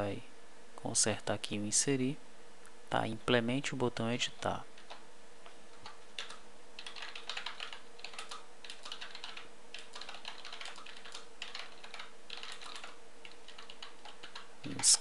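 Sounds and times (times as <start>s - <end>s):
faint steady hum: 0.0s - 15.0s
typing on computer keyboard: 5.7s - 15.0s.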